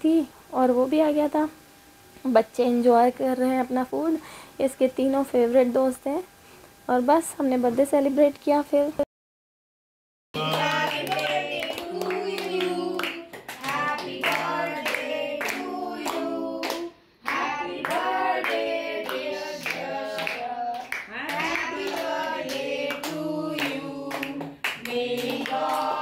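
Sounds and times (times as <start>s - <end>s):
group singing birthday song: 10.4s - 26.0s
hands clapping: 10.4s - 26.0s.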